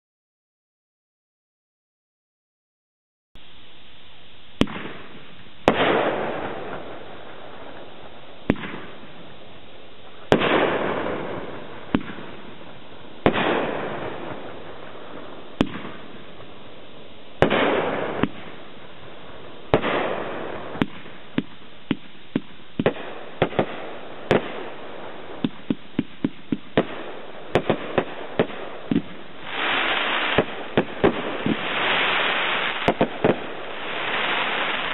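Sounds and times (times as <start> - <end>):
firework hissing tail: 4.6 - 34.9
firework cake bangs: 8.5 - 9.0, 10.3 - 12.4, 13.2 - 14.2, 15.6 - 16.1, 25.4 - 34.9.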